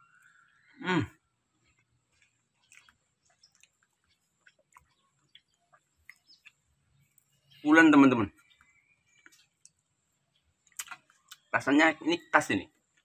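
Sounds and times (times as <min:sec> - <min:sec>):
person chewing: 0:01.5 - 0:07.3, 0:10.6 - 0:11.5
wet mouth clicks: 0:10.7 - 0:11.5.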